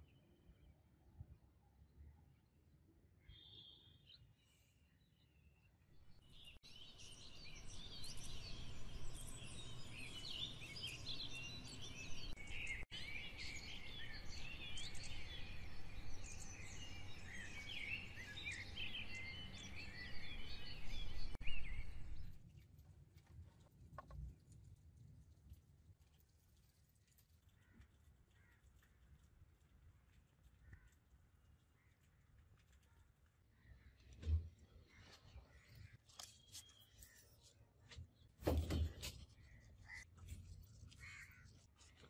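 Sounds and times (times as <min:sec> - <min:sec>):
flock of small birds chirping: 0:06.2 - 0:22.6, 0:38.5 - 0:42.0.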